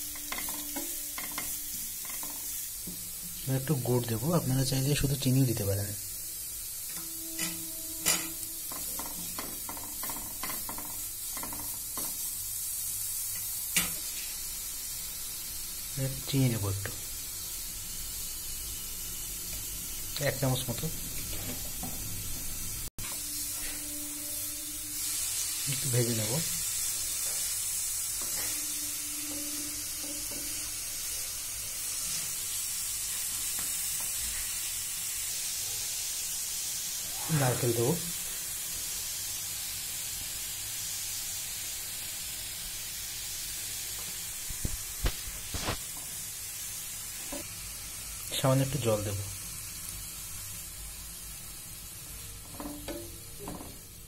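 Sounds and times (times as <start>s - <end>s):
carrots sizzling in a pan: 0.0s - 54.0s
spatula scraping a pan: 26.7s - 31.1s.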